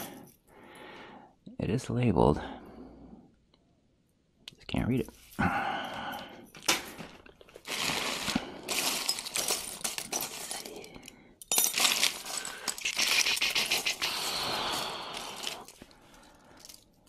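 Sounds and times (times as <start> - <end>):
jewelry clinking and rattling: 6.4 - 17.0.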